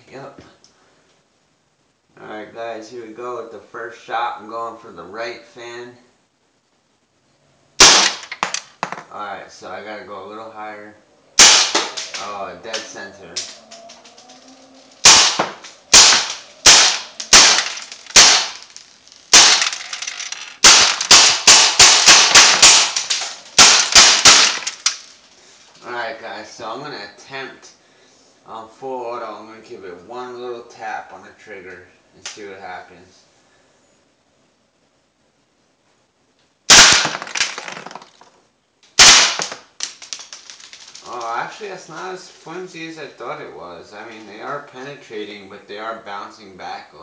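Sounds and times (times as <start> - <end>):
bb rifle shots cracking: 7.8 - 9.0, 11.4 - 13.6, 15.0 - 25.1, 36.7 - 37.8, 39.0 - 41.0
bb striking metal mesh: 15.0 - 25.1.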